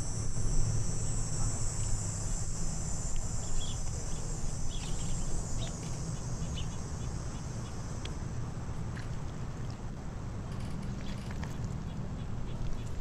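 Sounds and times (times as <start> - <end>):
high-pitched insect chorus: 0.0 - 9.1.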